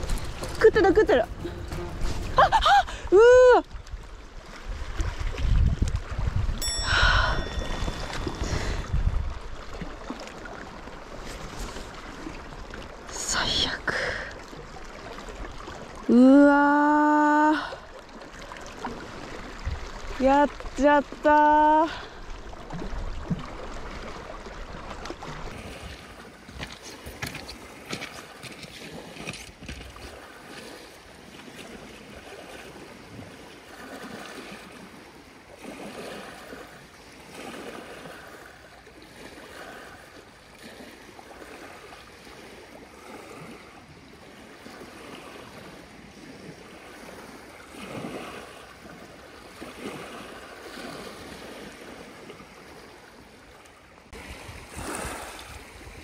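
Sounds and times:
wind buffeting microphone: 0.0 - 10.1, 54.1 - 56.0
waves lapping on pebble shore: 0.0 - 16.1, 17.8 - 56.0.

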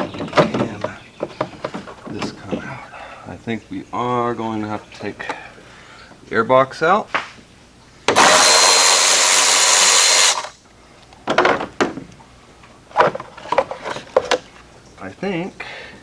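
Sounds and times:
cordless drill running: 8.1 - 10.5.

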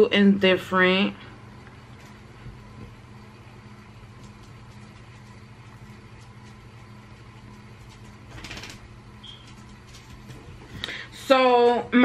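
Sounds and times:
air conditioner humming: 0.0 - 12.0.

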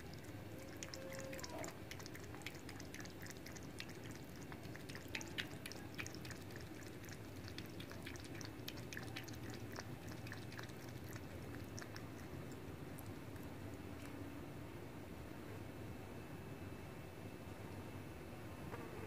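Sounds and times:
cat lapping water: 0.0 - 14.2
low background noise: 0.0 - 19.0.

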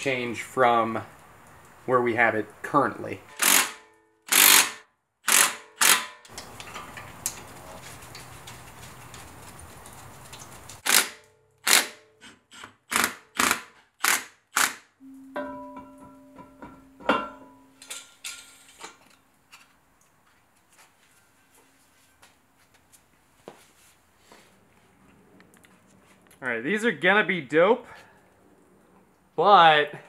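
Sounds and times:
cordless ratchet whirring: 3.3 - 6.0.

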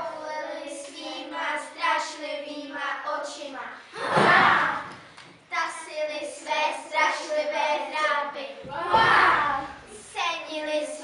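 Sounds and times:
children singing: 4.0 - 5.0, 6.3 - 11.0.

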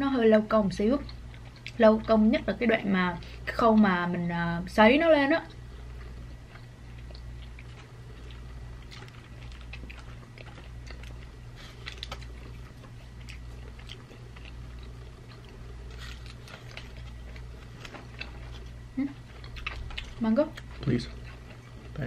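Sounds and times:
steady low hum: 0.0 - 22.0
people chewing dry jerky: 0.8 - 3.9, 5.4 - 22.0
small crunches: 6.4 - 22.0.

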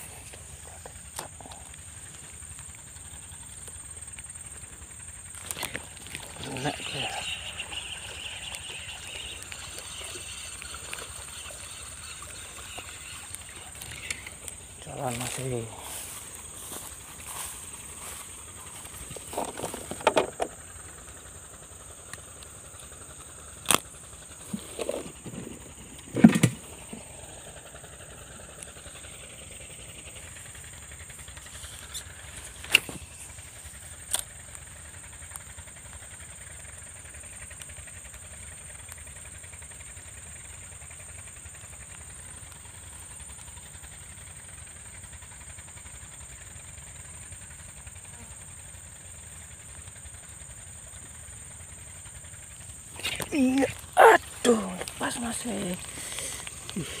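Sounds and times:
constant high hiss: 0.0 - 57.0
distant pump engines droning: 0.0 - 57.0
fishing rod knocks and clicks: 19.4 - 20.5.

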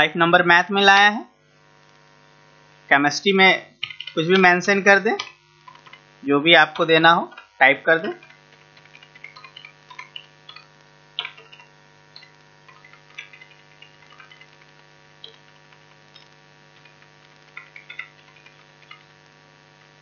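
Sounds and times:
steady electrical hum: 0.0 - 20.0
computer keyboard keys clicking: 3.8 - 4.2, 8.2 - 19.1.

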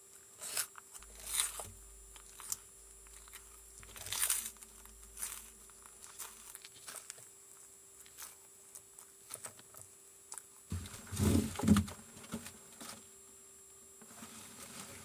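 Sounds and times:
tortoise crunching vegetables: 0.0 - 11.8
rustling and knocks: 10.7 - 13.1.

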